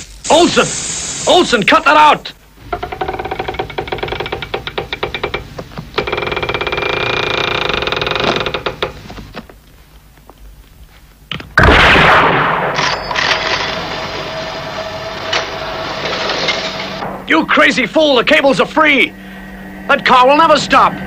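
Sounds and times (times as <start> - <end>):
loud crash with hiss: 0.0 - 1.8, 13.5 - 17.3
winch machinery clattering and whirring: 2.6 - 9.1, 13.0 - 19.2
steady hum with held tone: 12.6 - 21.0.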